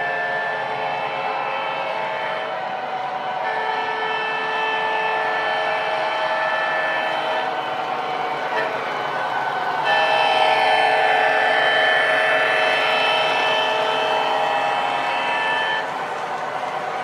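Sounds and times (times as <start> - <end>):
model train rumbling on track: 0.0 - 17.0
multi-note train horn: 0.0 - 17.0.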